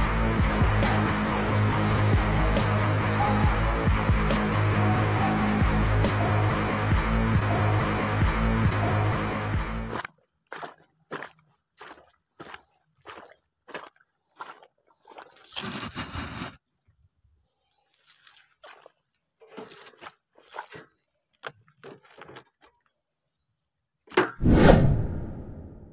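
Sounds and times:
handling crunches and scrapes: 0:14.4 - 0:16.8, 0:17.8 - 0:23.0.

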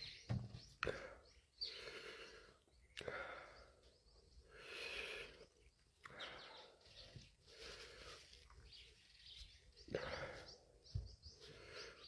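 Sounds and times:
slow mouth breathing: 0:00.8 - 0:08.8.

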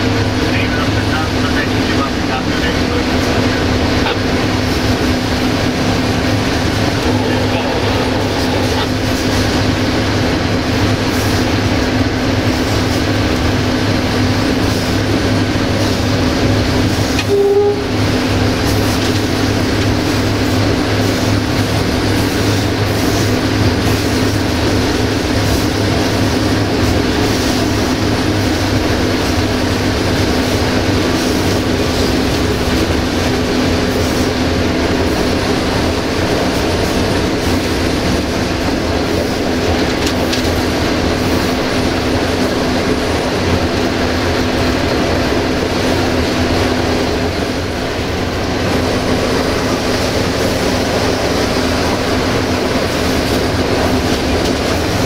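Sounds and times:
locomotive diesel engine hum: 0:00.0 - 0:55.0
wheels rumbling on rail: 0:00.0 - 0:55.0
short horn toot: 0:17.2 - 0:18.0.

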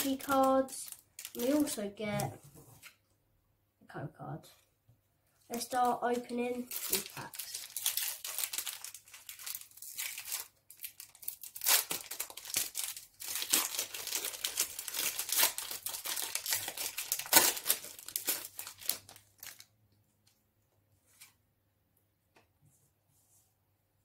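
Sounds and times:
foil wrapper crinkling and tearing: 0:00.0 - 0:01.8, 0:05.5 - 0:19.7.

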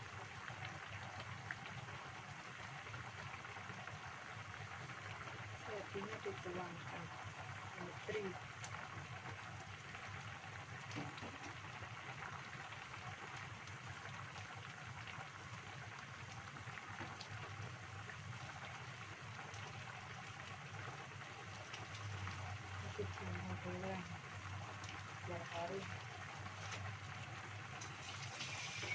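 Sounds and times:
soup boiling in a pan: 0:00.0 - 0:28.9.

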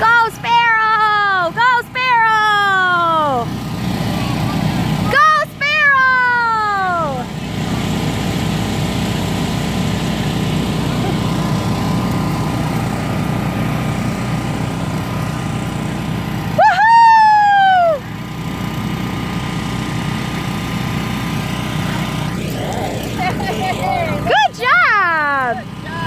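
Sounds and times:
electric air blower humming: 0:00.0 - 0:26.0
person whooping: 0:16.6 - 0:18.1.

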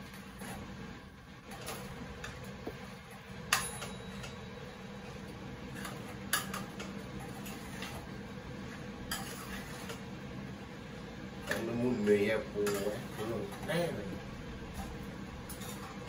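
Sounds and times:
metal utensil scraping a frying pan: 0:09.1 - 0:10.0.

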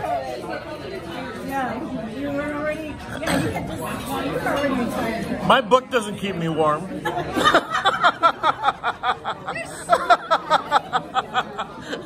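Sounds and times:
people laughing: 0:07.0 - 0:12.0.

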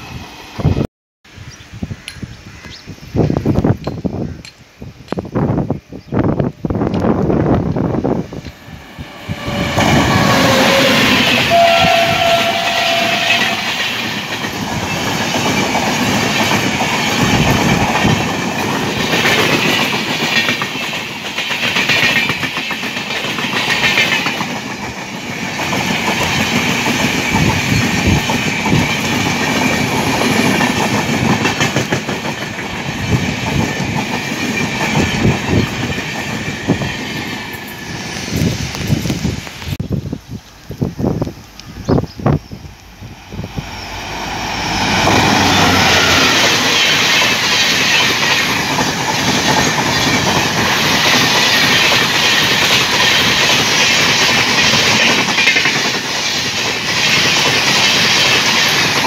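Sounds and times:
train wheels clattering: 0:06.9 - 0:39.8, 0:43.6 - 0:59.0
locomotive horn: 0:09.1 - 0:14.0, 0:44.8 - 0:46.8.

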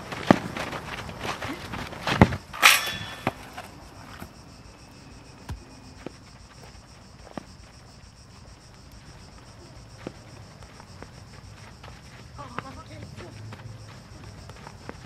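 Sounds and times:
feet running on dirt: 0:00.0 - 0:04.4, 0:05.5 - 0:15.0
crickets chirping: 0:00.0 - 0:15.0
football kicks: 0:05.4 - 0:06.2.

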